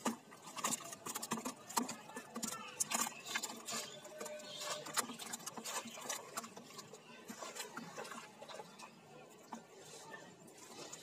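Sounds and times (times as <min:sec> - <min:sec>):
feet wading through muddy water: 0:00.0 - 0:11.0.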